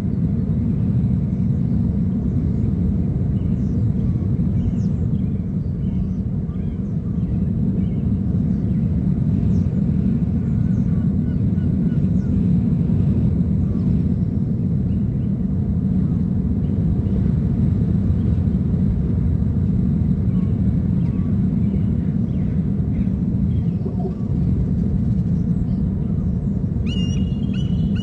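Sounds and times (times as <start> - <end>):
boat engines rumbling: 17.9 - 28.0.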